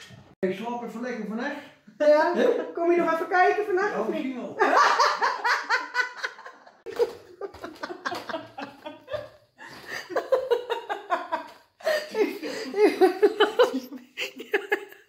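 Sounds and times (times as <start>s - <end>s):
people laughing: 4.6s - 15.0s.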